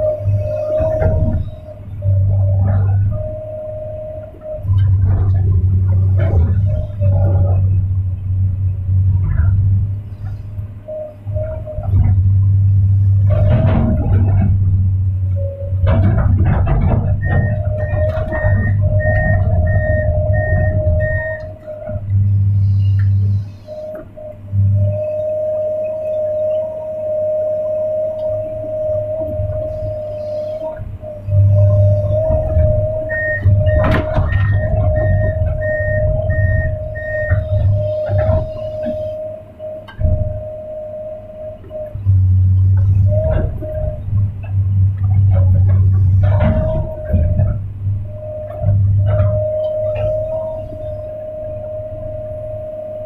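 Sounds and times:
excavator engine droning: 0:00.0 - 0:53.0
steady whine: 0:00.0 - 0:53.0
warning alarm beeping: 0:00.0 - 0:53.0
clattering knocks: 0:11.2 - 0:23.3, 0:28.8 - 0:39.2, 0:41.6 - 0:51.6.

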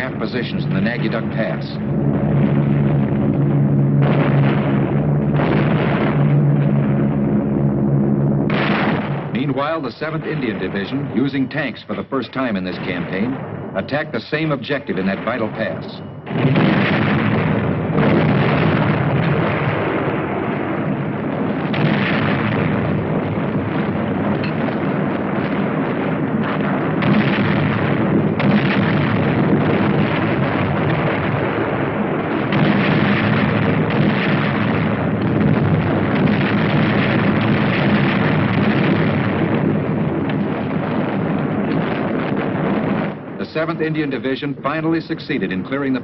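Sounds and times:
explosions: 0:00.0 - 0:46.0
gunfire: 0:00.0 - 0:46.0.

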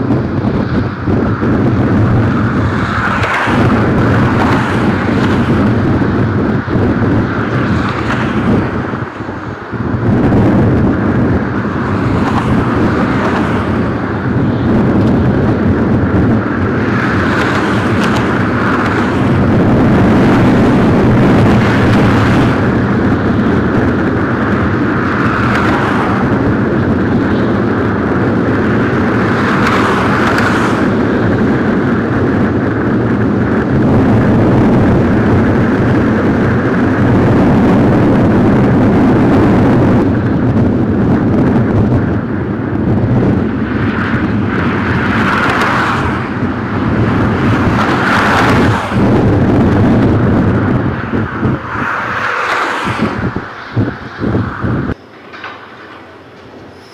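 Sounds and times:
crane machinery low hum: 0:00.0 - 0:25.5, 0:53.0 - 0:56.9
rushing noise: 0:00.0 - 0:56.9.

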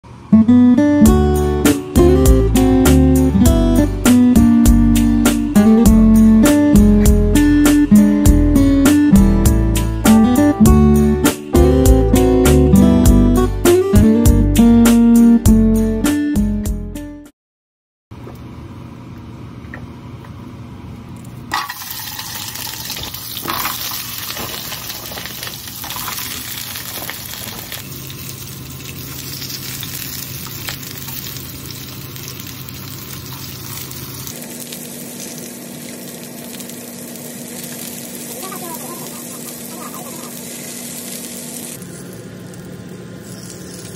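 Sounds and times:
dumplings sizzling in a frying pan: 0:21.6 - 0:41.8.

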